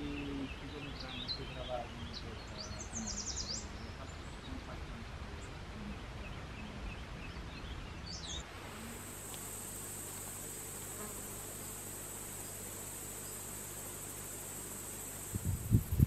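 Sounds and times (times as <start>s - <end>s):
birds chirping: 0.0s - 16.0s
high-pitched insect drone: 8.7s - 16.0s.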